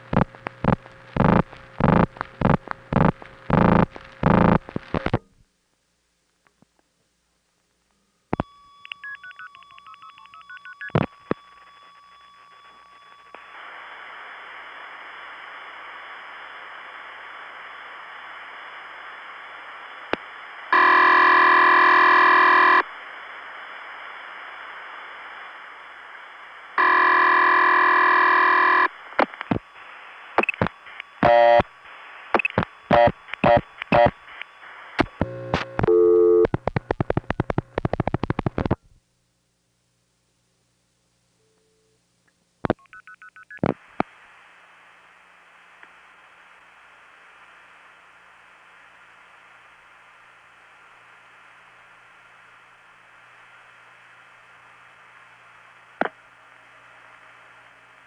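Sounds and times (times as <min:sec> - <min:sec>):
telephone line click: 0:08.4 - 0:12.3
telephone signalling tones: 0:08.4 - 0:13.3, 0:20.8 - 0:22.8, 0:26.8 - 0:28.9, 0:31.2 - 0:31.7, 0:32.4 - 0:34.1, 0:35.2 - 0:36.6
telephone ringing tone: 0:08.8 - 0:13.3, 0:20.8 - 0:22.8, 0:26.8 - 0:28.9, 0:31.2 - 0:31.6.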